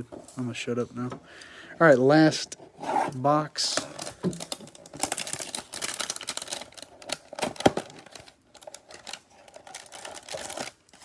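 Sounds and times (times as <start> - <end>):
cellophane crackling and tearing: 3.8 - 11.0.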